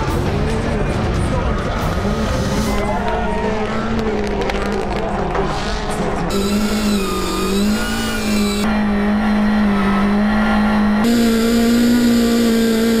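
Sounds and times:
car engine at high revs: 0:03.5 - 0:13.0.

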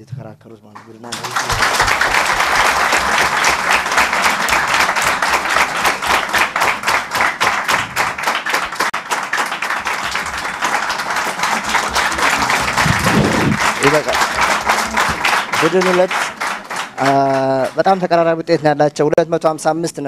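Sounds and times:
audience applauding: 0:00.8 - 0:18.9.

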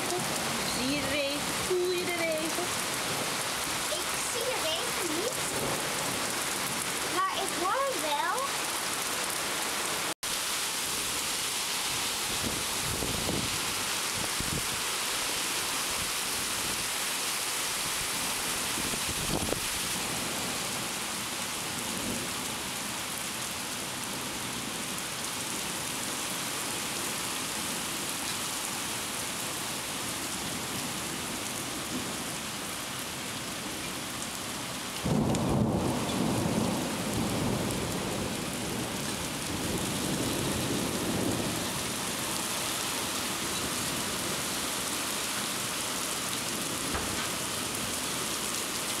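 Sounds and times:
heavy rain pouring: 0:00.0 - 0:49.0.

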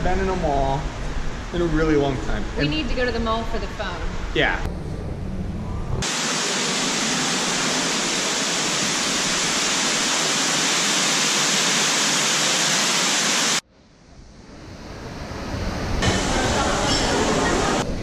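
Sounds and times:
steady hiss: 0:06.0 - 0:17.9.

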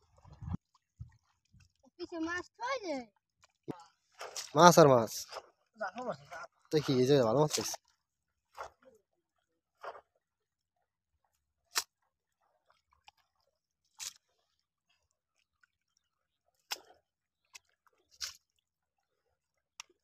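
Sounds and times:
hands squelching in wet mud: 0:11.7 - 0:16.0, 0:16.6 - 0:18.6.

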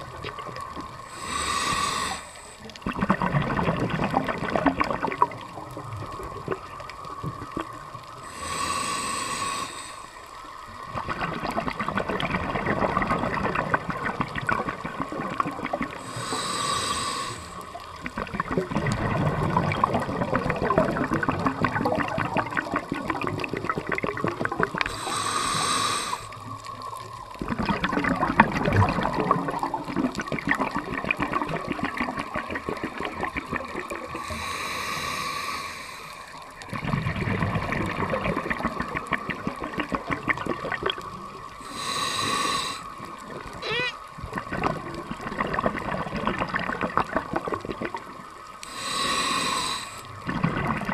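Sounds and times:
gurgling exhaled bubbles: 0:00.0 - 0:09.9, 0:10.6 - 0:50.9
regulator hissing inhale: 0:01.0 - 0:02.8, 0:08.2 - 0:10.6, 0:16.0 - 0:17.8, 0:24.8 - 0:26.4, 0:34.2 - 0:36.5, 0:41.6 - 0:43.0, 0:48.6 - 0:50.2.

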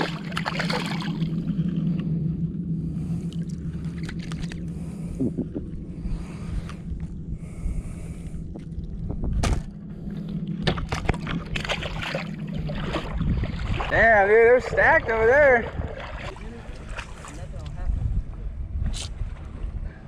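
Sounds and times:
fish splashing: 0:00.0 - 0:01.8, 0:10.6 - 0:14.0, 0:14.6 - 0:17.3
steady low hum: 0:00.0 - 0:20.0.

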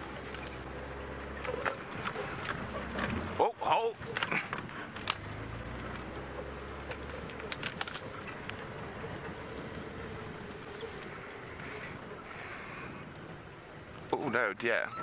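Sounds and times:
vehicle knocks and rattles: 0:00.0 - 0:11.2
vehicle engine rumble: 0:00.0 - 0:15.0.

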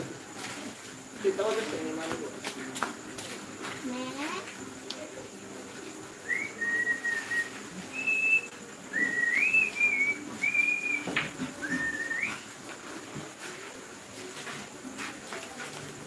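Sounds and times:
person whistling a tune: 0:06.2 - 0:12.5.

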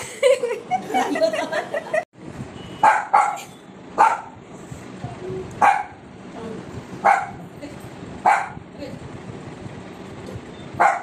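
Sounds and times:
dog barking: 0:02.8 - 0:04.4, 0:05.6 - 0:06.0, 0:07.0 - 0:07.4, 0:08.2 - 0:08.6, 0:10.8 - 0:11.0.

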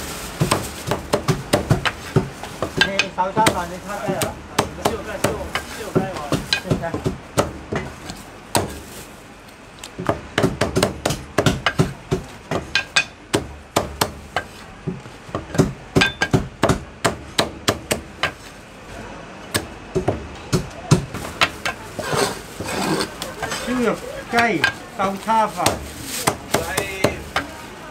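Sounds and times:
cleaver chopping on wooden block: 0:00.4 - 0:08.8, 0:10.0 - 0:18.4, 0:19.5 - 0:22.7.

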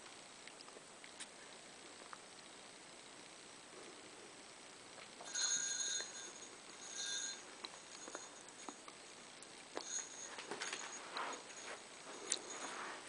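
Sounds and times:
small jingle bells jingling: 0:05.2 - 0:13.0.

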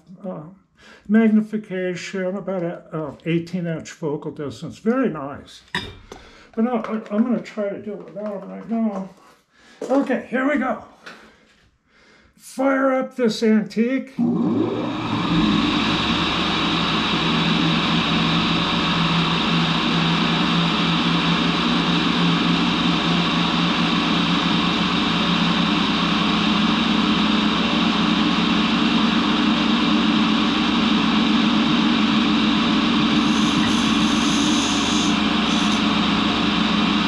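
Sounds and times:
lathe running: 0:14.2 - 0:37.0.

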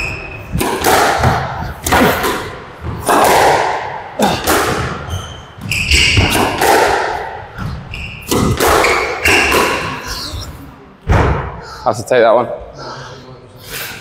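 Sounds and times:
racket striking squash ball: 0:00.0 - 0:10.0
ball hitting court walls: 0:00.5 - 0:10.0
shoes squeaking on floor: 0:04.8 - 0:06.6, 0:07.6 - 0:10.6.

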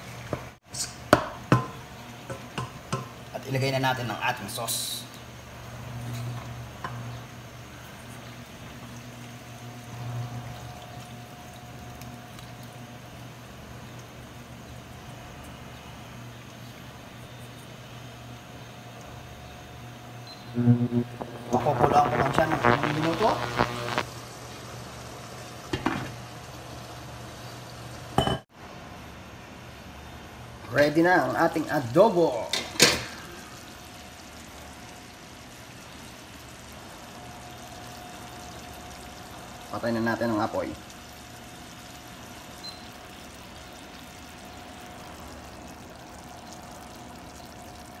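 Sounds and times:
food sizzling in a frying pan: 0:00.0 - 0:28.4, 0:31.2 - 0:48.0
thin steady hum: 0:00.8 - 0:30.6, 0:33.1 - 0:48.0
sauce bubbling in a wok: 0:06.6 - 0:20.5, 0:32.7 - 0:48.0.

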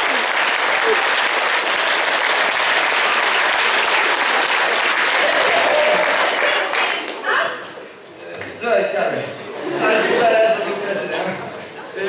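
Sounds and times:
audience applause: 0:00.0 - 0:07.2.

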